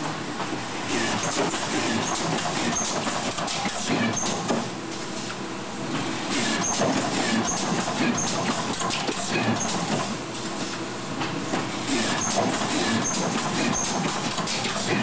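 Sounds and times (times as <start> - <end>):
machine clacks and knocks: 6.6 - 10.2.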